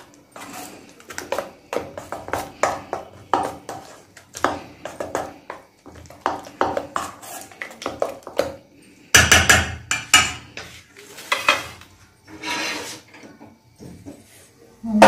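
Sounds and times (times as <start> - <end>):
spoon stirring in steel bowl: 0.0 - 8.6.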